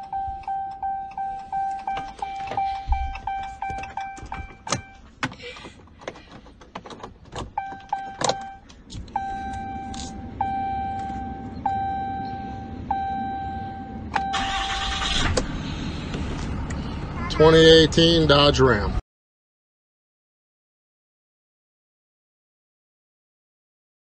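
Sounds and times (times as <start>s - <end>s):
rapid warning beeps: 0.0s - 5.0s, 9.2s - 15.1s
slow warning chime: 0.0s - 5.0s, 9.2s - 15.0s
low steady hum: 0.0s - 6.2s, 7.2s - 18.9s.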